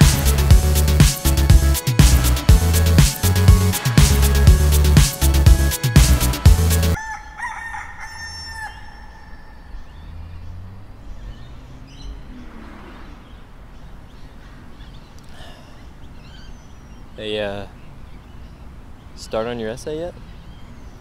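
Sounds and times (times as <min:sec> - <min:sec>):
loud dance music: 0:00.0 - 0:07.0
rooster crowing: 0:06.8 - 0:10.1.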